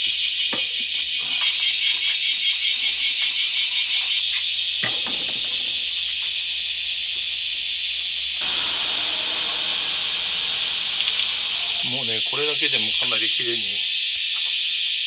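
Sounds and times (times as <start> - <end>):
water spraying on metal door: 8.4 - 12.3.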